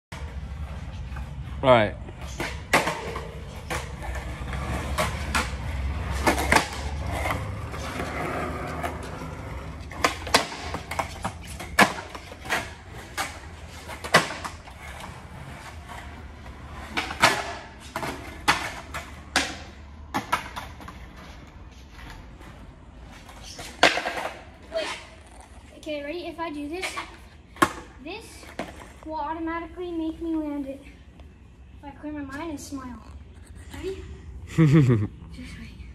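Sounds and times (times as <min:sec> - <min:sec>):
skateboard wheels rolling on concrete: 0:00.1 - 0:31.3
skateboard clacking on concrete: 0:02.2 - 0:25.9, 0:26.8 - 0:29.0.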